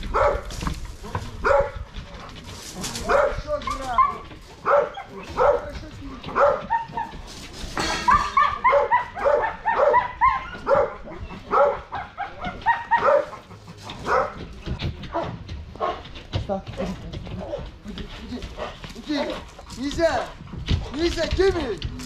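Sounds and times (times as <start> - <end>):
dog barking: 0.1 - 0.5, 1.4 - 1.8, 3.0 - 7.2, 8.1 - 14.4, 15.1 - 16.0.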